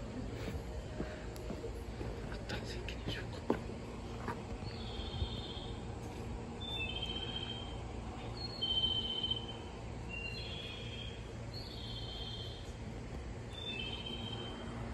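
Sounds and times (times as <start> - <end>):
steady low hum: 0.0 - 14.9
songbird whistling: 8.4 - 12.6, 13.6 - 14.6.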